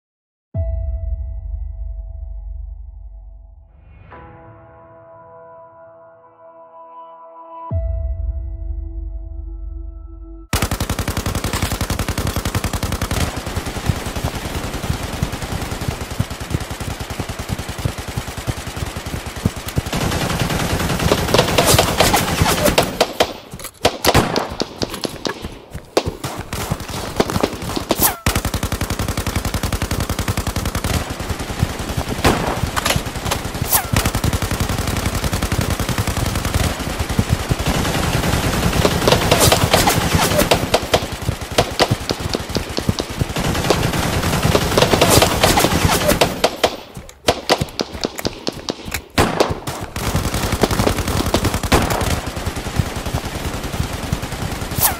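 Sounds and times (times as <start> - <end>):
machine-gun fire: 10.5 - 54.9
single gunshots: 21.0 - 28.5, 32.2 - 34.4, 38.8 - 52.3.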